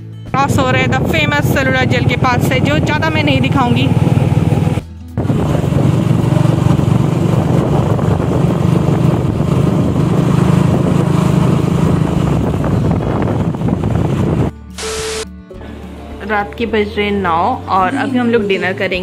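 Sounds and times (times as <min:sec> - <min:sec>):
motorbike engine running: 0:00.3 - 0:15.2
wind noise on microphone: 0:00.3 - 0:15.2.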